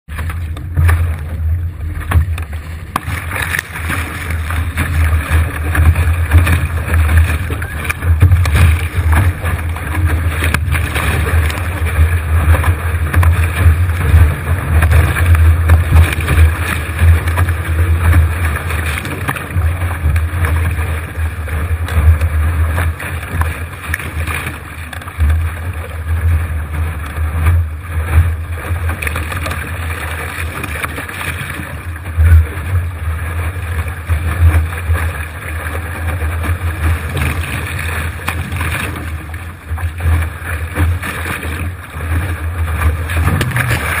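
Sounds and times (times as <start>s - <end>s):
water rushing along hull: 0.0s - 44.0s.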